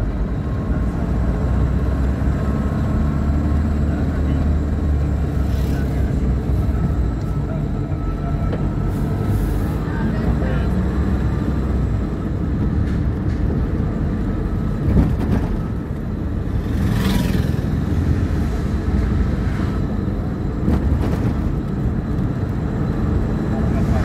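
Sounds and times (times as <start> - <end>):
vehicle engine and road rumble: 0.0 - 24.0.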